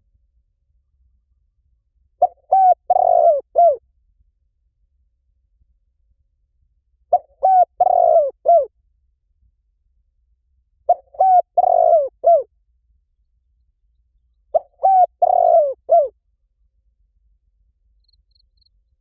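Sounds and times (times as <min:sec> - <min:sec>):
dove cooing: 0:02.2 - 0:03.8, 0:07.1 - 0:08.7, 0:10.9 - 0:12.5, 0:14.5 - 0:16.2.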